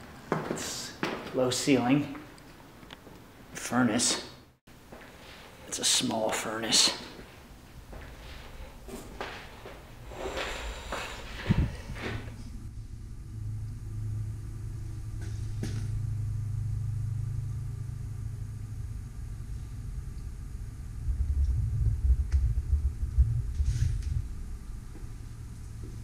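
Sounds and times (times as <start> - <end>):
low bumps: 7.3 - 26.0
road traffic rumble: 7.4 - 26.0.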